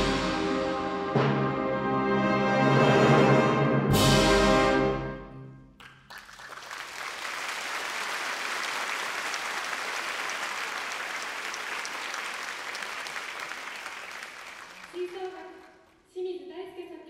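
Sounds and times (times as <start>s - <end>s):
audience applause: 5.8s - 16.0s.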